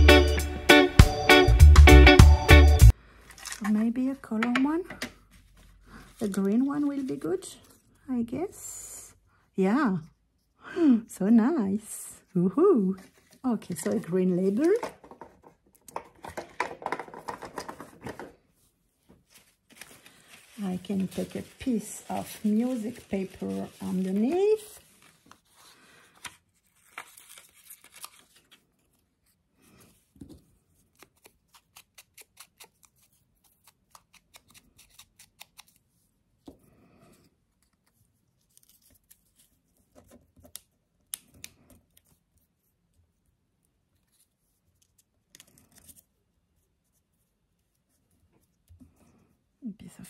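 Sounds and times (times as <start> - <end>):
paper rustling: 3.3 - 3.8, 5.2 - 7.9, 12.9 - 15.4, 16.0 - 36.6, 37.5 - 40.7
paper tearing: 26.2 - 28.6, 30.9 - 35.8.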